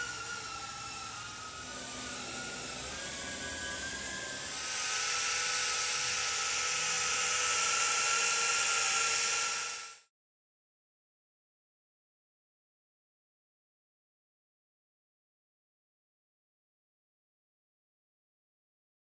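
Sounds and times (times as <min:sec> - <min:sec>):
drone propellers whining: 0:00.0 - 0:10.0.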